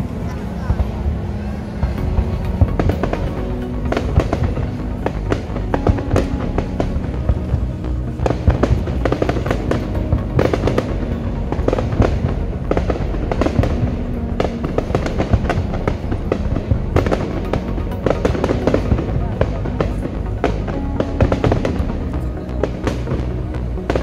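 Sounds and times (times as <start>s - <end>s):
fireworks bursting and crackling: 0.6s - 24.0s.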